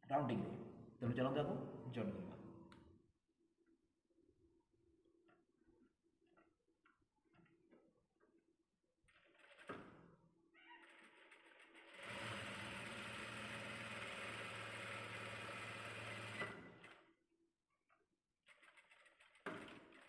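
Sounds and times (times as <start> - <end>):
sewing machine running: 9.2 - 9.7, 10.8 - 17.1, 18.5 - 20.0.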